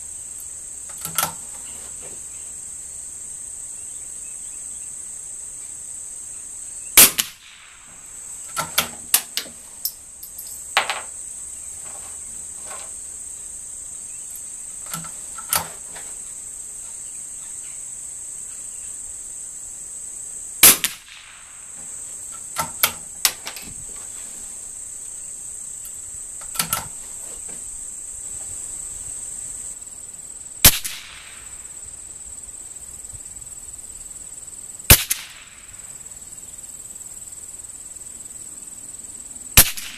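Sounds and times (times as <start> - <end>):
insects chirring: 0.0 - 39.9
rifle shots: 7.0 - 8.0, 20.6 - 21.5, 30.6 - 31.4, 34.9 - 35.5, 39.6 - 39.9.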